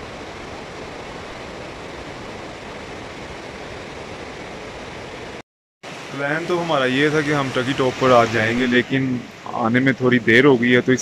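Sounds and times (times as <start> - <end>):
river rushing over boulders: 0.0 - 10.8.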